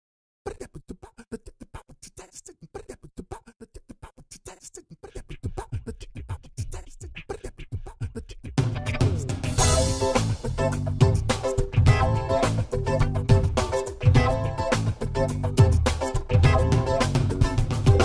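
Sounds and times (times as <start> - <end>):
percussive intro music: 8.6 - 18.0.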